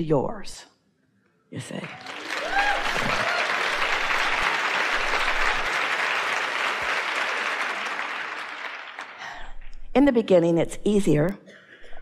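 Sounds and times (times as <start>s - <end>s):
audience applauding: 1.7s - 9.4s.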